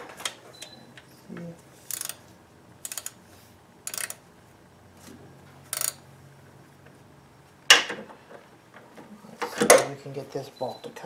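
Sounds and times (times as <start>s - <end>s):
ratchet wrench clicking: 1.9s - 2.2s, 2.8s - 3.2s, 3.8s - 4.2s, 5.7s - 6.0s.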